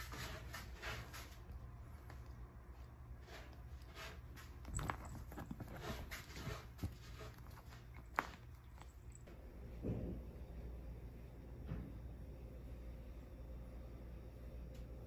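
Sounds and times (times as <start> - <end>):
paws scratching leather: 0.0 - 9.3.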